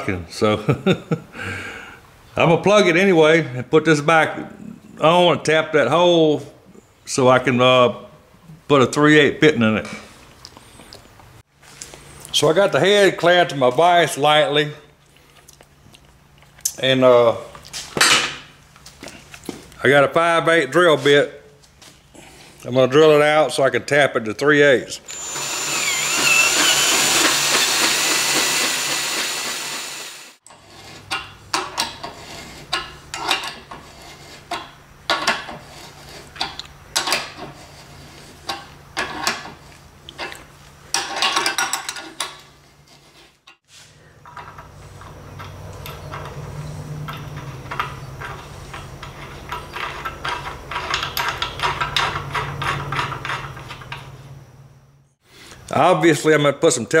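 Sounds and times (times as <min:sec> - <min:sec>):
power drill boring metal: 0:25.1 - 0:30.4.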